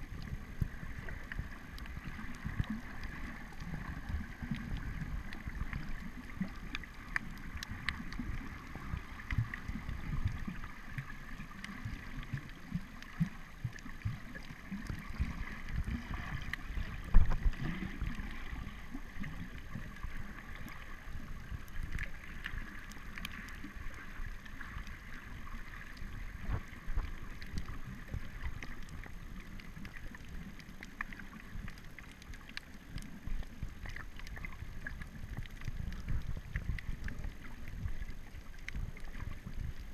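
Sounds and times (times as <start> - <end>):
faint clicks and crackle: 0.0 - 39.9
muffled underwater water rumble: 0.0 - 39.9.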